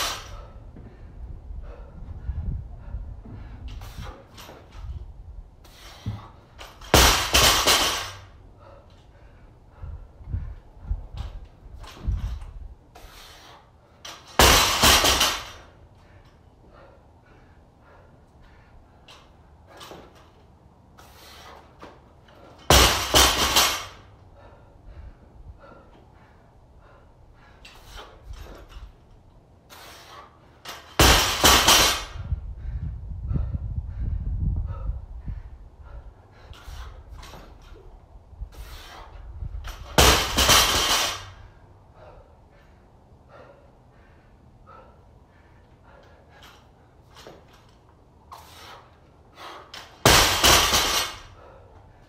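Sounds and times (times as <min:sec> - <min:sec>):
short hard breaths: 0:00.0 - 0:05.0, 0:05.6 - 0:06.9, 0:07.9 - 0:14.1, 0:15.1 - 0:20.2, 0:20.9 - 0:22.7, 0:23.7 - 0:29.0, 0:29.6 - 0:31.4, 0:32.0 - 0:37.8, 0:38.4 - 0:39.6, 0:41.2 - 0:47.6, 0:48.3 - 0:49.9, 0:51.1 - 0:52.0
barbell dropped on rubber mats: 0:06.2 - 0:08.3, 0:14.1 - 0:15.7, 0:22.6 - 0:24.0, 0:30.7 - 0:32.2, 0:39.7 - 0:41.4, 0:49.8 - 0:51.3.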